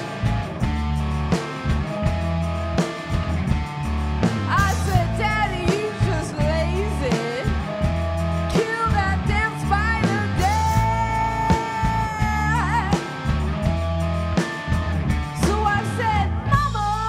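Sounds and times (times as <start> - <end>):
drum kit: 0.0 - 17.0
electric bass: 0.0 - 17.0
electric guitar: 0.0 - 17.0
woman singing: 4.5 - 7.7, 8.5 - 13.3, 15.3 - 17.0.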